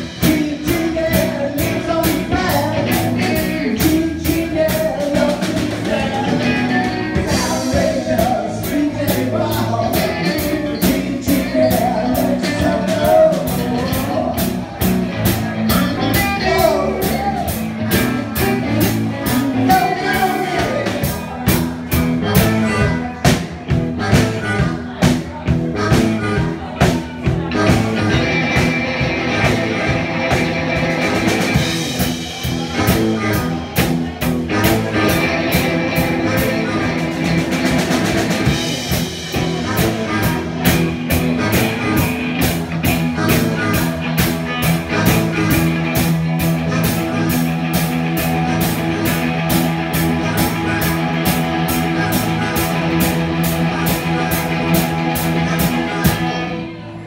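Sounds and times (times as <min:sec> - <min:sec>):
drum kit beat: 0:00.0 - 0:56.5
rock music: 0:00.0 - 0:57.0.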